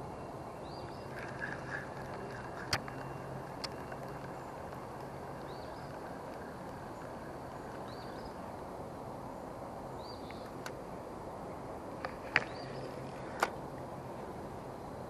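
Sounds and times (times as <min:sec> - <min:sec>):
small bird chirping: 0:00.6 - 0:08.5.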